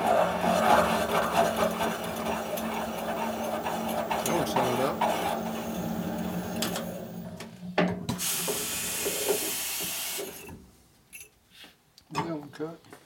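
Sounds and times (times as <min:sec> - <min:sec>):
cutting machine motor hum: 0:00.0 - 0:07.4
loud hiss of air: 0:08.2 - 0:10.5.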